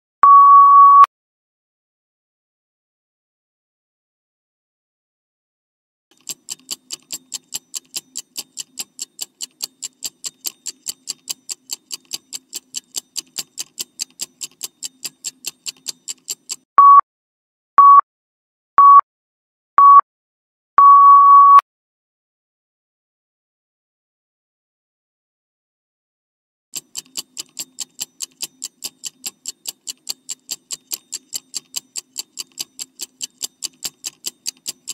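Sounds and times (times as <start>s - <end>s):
short timer beeps: 0.2s - 1.1s, 7.1s - 17.0s, 17.8s - 18.0s, 18.8s - 19.0s, 19.8s - 20.0s, 20.8s - 21.6s
clock ticking: 6.1s - 16.7s, 26.8s - 34.9s.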